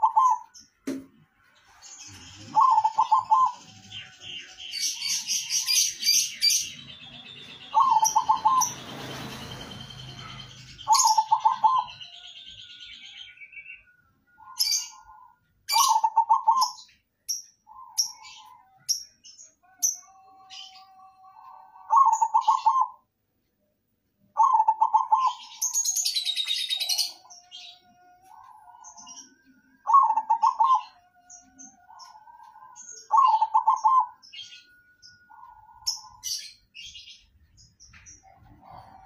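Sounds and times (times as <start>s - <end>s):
dove cooing: 0.0s - 0.6s, 2.1s - 8.9s, 10.2s - 12.0s, 14.4s - 16.8s, 20.1s - 23.0s, 24.4s - 25.8s, 29.8s - 31.0s, 31.8s - 34.2s, 38.3s - 39.0s
long high arching bird call: 0.0s - 0.6s, 2.4s - 16.9s, 19.6s - 23.1s, 24.3s - 37.3s.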